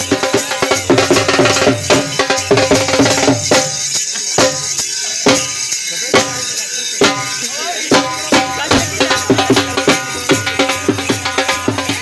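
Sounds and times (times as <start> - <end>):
drum beaten in heavy strokes: 0.0 - 12.0.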